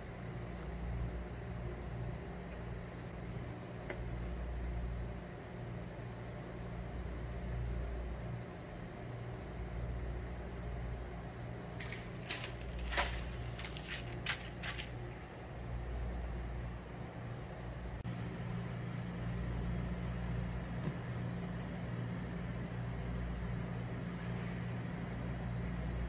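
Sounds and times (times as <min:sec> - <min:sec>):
low machine hum: 0:00.0 - 0:26.0
plastic sheet crinkling: 0:11.8 - 0:15.0.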